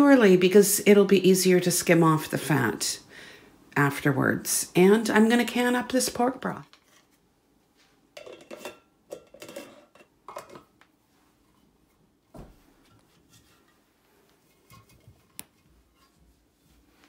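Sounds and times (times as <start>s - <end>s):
glass jars knocking and clattering: 8.2s - 10.8s.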